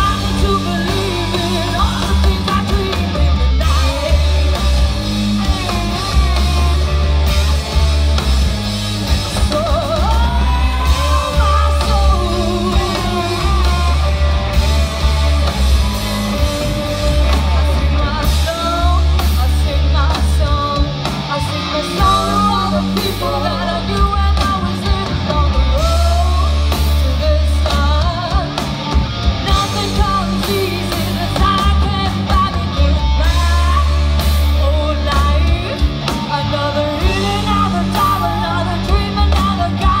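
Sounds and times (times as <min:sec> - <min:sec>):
woman singing: 0:00.0 - 0:06.8, 0:09.2 - 0:14.3, 0:17.4 - 0:28.7, 0:29.4 - 0:40.0
distorted electric guitars: 0:00.0 - 0:40.0
drums: 0:00.0 - 0:40.0.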